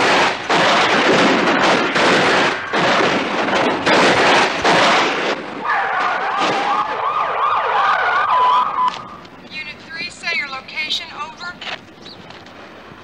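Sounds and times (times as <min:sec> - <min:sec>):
police siren yelping: 0:05.6 - 0:09.3.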